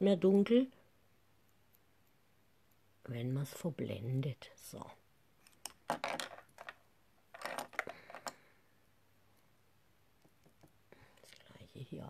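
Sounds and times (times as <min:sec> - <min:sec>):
cosmetic items clattering: 0:05.7 - 0:08.4.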